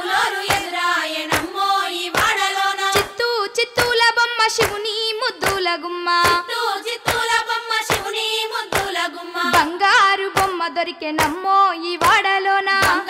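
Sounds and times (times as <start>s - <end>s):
hand claps: 0.1s - 10.6s, 11.2s - 13.0s
woman singing folk song: 3.0s - 6.6s, 9.4s - 13.0s.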